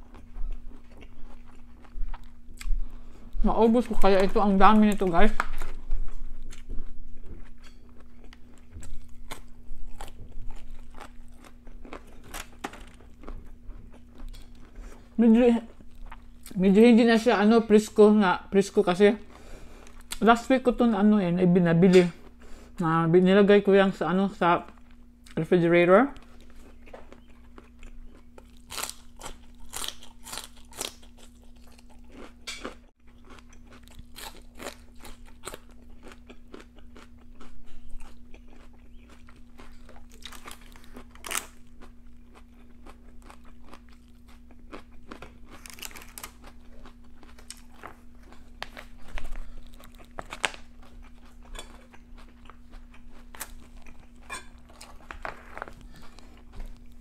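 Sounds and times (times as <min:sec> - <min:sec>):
faint steady hum: 0:00.0 - 0:57.0
crunching raw vegetables: 0:26.1 - 0:57.0.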